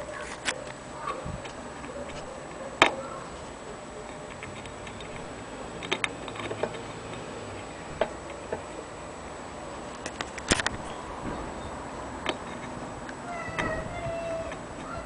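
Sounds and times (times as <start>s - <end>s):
sharp clicks: 4.1s - 7.2s, 9.9s - 11.4s
small metallic knocks: 10.0s - 12.8s.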